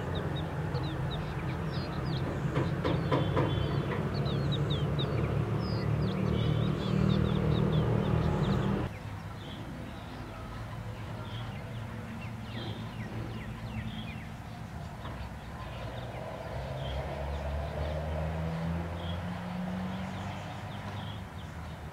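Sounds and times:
loud low steady hum: 0.0 - 8.9
small birds chirping: 0.0 - 21.9.

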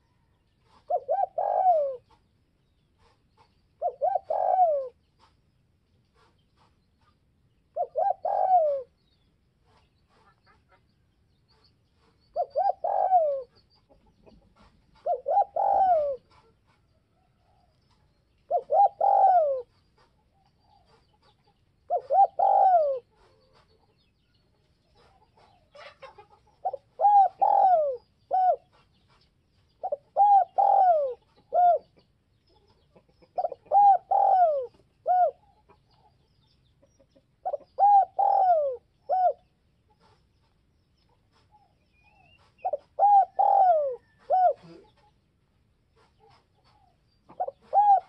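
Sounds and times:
dove cooing: 0.0 - 2.3, 3.8 - 5.0, 7.7 - 9.0, 12.3 - 16.8, 18.5 - 20.1, 21.9 - 23.7, 25.0 - 28.9, 29.8 - 32.0, 33.2 - 35.8, 37.4 - 40.2, 41.3 - 45.1, 46.0 - 48.0.

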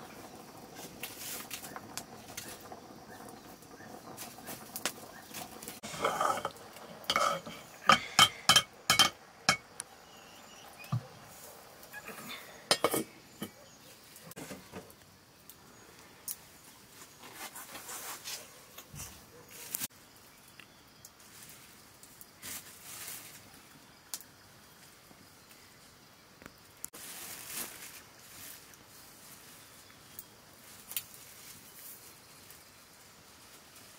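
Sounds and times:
pot lids and dishes clinking: 5.8 - 9.7, 11.9 - 13.6
plastic bag rustling: 27.0 - 29.7.

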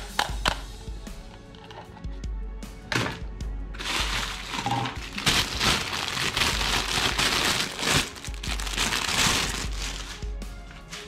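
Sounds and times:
plastic bag crinkling: 3.8 - 11.0.

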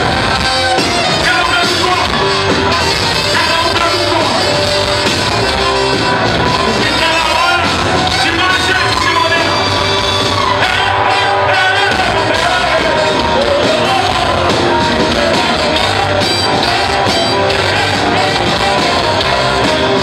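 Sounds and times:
drums: 0.0 - 20.0
electric guitars: 0.0 - 20.0
keyboard: 0.0 - 20.0
man singing into microphone: 10.6 - 16.0.

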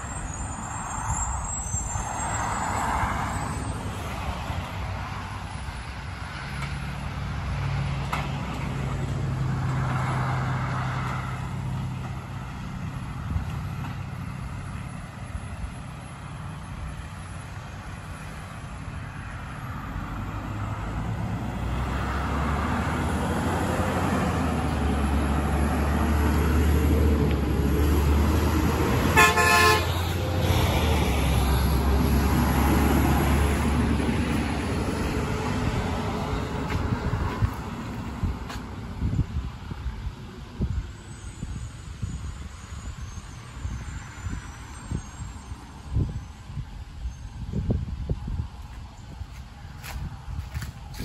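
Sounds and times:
short horn toot: 29.2 - 30.0.

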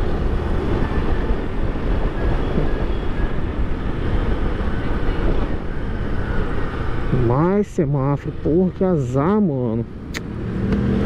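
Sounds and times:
wind and road noise: 0.0 - 11.0.

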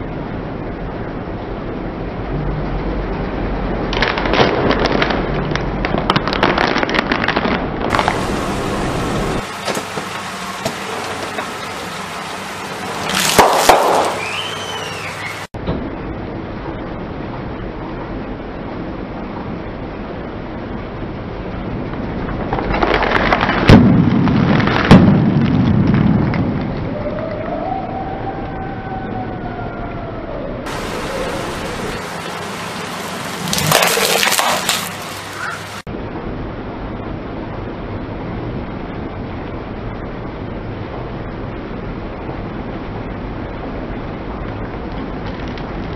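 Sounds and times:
low rumble: 0.0 - 13.2, 13.9 - 45.9
snack packets popping under tyre: 3.9 - 8.2, 33.5 - 35.0.

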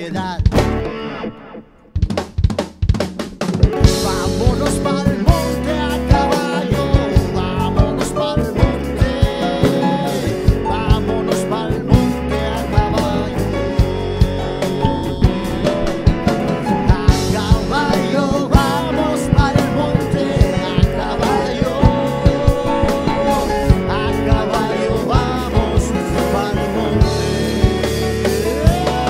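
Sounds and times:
bass: 0.0 - 29.0
drum kit: 0.0 - 29.0
guitars: 0.0 - 29.0
congas: 2.0 - 29.0
keyboard: 3.4 - 29.0
person singing lead: 3.9 - 27.6, 28.4 - 29.0.

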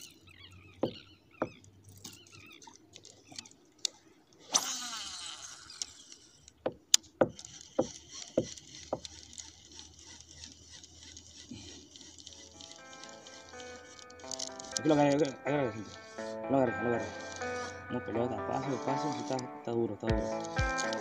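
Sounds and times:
rod knocking against kayak: 0.8 - 1.6
fishing reel whirring: 4.4 - 6.6, 7.3 - 19.4, 20.2 - 21.0.

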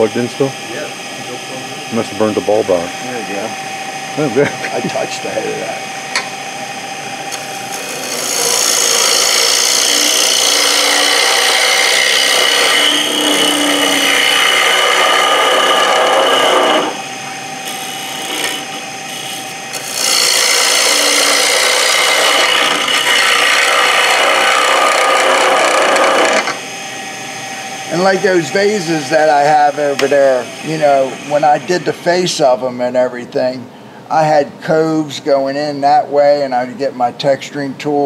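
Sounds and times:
lathe tool scraping wood: 7.5 - 26.8.

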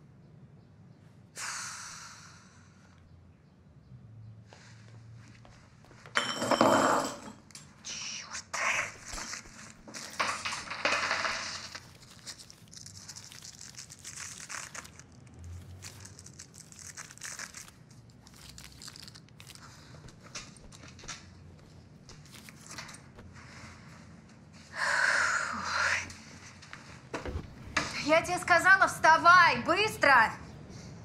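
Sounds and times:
rustling and crinkling handling: 8.8 - 24.6.

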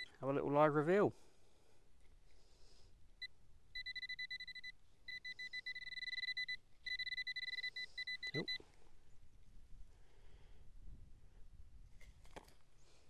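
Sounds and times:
metal detector pulsing tone: 3.2 - 8.6.

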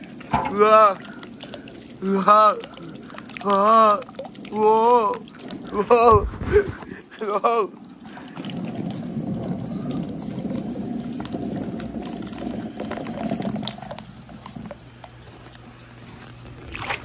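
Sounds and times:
water splashing into tub: 0.0 - 17.0
water trickling: 0.0 - 17.0
balls rolling down board: 8.2 - 14.8.

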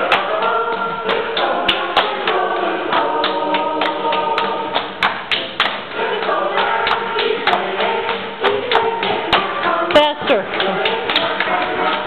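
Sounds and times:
hand claps: 0.0 - 12.0
women singing a rhyme: 6.0 - 12.0.

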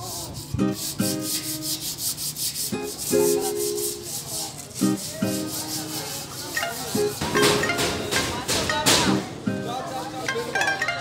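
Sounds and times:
shaker-like rhythm: 0.0 - 11.0
pitched chords: 6.6 - 11.0.

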